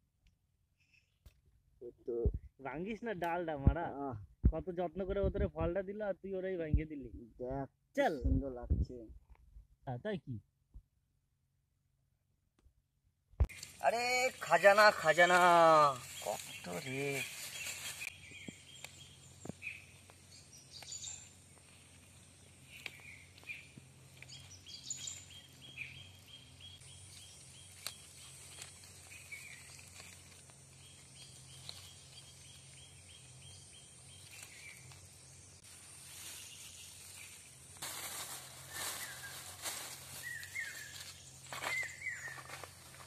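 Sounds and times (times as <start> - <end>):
repeated bird calls: 13.5 - 37.5, 40.2 - 43.0
footsteps on dry leaves: 13.5 - 43.0
bird chirps: 16.0 - 37.7, 38.6 - 43.0.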